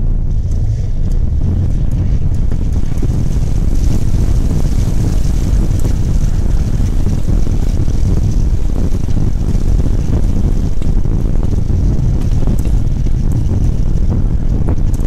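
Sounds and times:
car engine rumble: 0.0s - 15.0s
water washing against car body: 1.6s - 15.0s.

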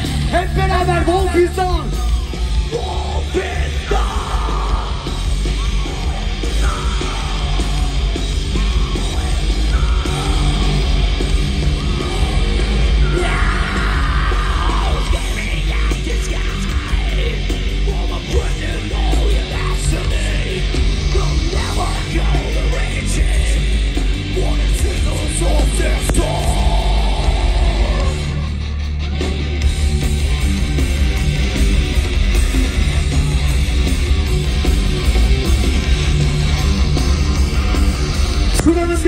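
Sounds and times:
people yelling: 0.0s - 23.6s, 24.6s - 29.1s, 32.3s - 34.3s
heavy metal band playing: 0.0s - 39.0s.

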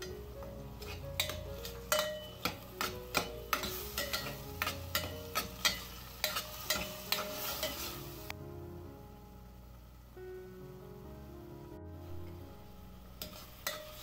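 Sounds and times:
spoon knocking and scraping pot: 0.0s - 8.0s, 13.2s - 14.0s
light sizzle: 0.0s - 14.0s.

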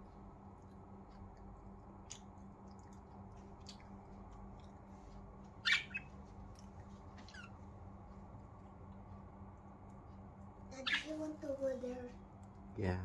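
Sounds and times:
faint steady hum: 0.0s - 13.0s
budgerigars chirping: 5.6s - 6.1s, 10.8s - 11.3s.

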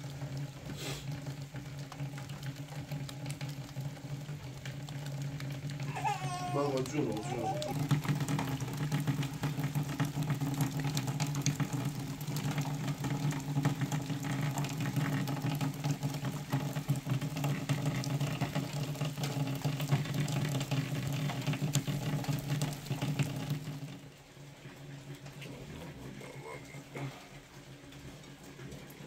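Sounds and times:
rain patter: 0.0s - 29.0s.

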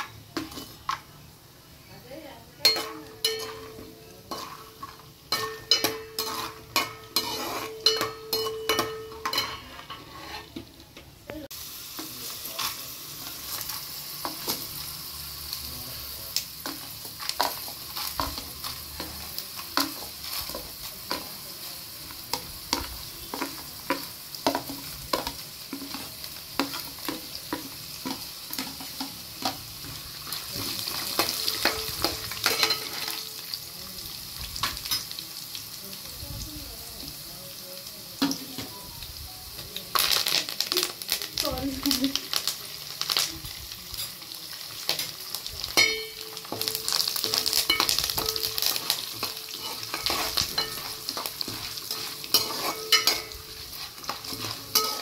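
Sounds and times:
peanuts sizzling in hot oil: 0.0s - 55.0s
metal spatula scraping pan: 2.6s - 10.7s, 45.8s - 55.0s.

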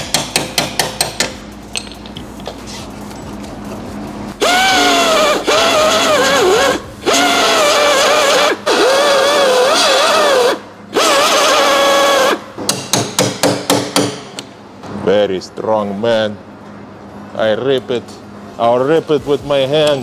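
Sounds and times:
power tool whining into metal: 4.4s - 12.4s
sharp knocks: 12.6s - 14.3s.

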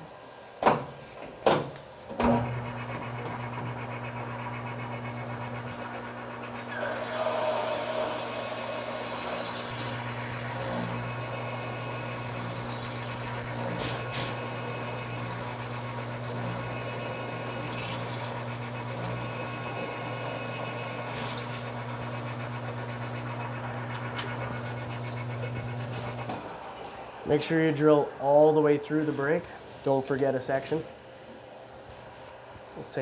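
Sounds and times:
metal lathe running: 2.4s - 26.3s.

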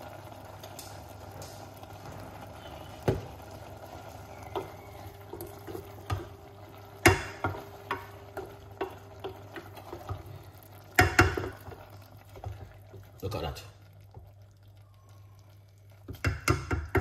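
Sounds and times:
vegetables sizzling: 0.0s - 17.0s
wooden spoon knocking on pan: 3.0s - 3.4s, 4.4s - 6.4s, 7.0s - 10.3s, 10.9s - 12.8s, 16.0s - 17.0s.

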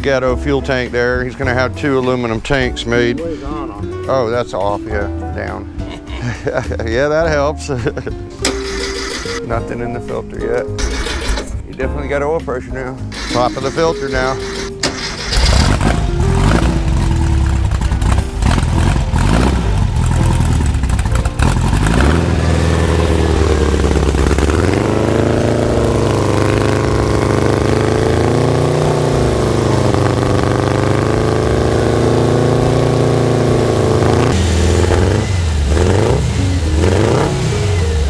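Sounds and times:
car engine running and revving: 13.1s - 38.0s.

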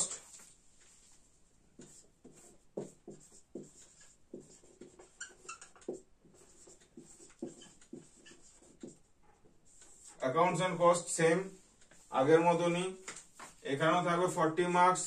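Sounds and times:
marker squeaking on whiteboard: 1.8s - 10.3s, 11.6s - 12.1s.

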